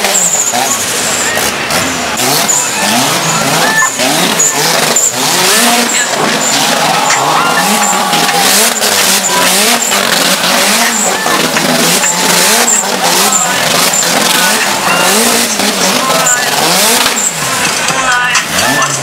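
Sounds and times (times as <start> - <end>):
car engine revving: 0.0 - 19.0
tyres squealing: 0.0 - 19.0.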